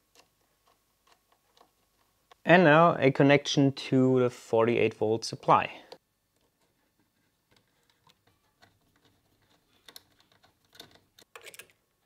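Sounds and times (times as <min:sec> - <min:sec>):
small clicks and taps of electrical parts: 0:00.1 - 0:02.4, 0:07.5 - 0:11.8.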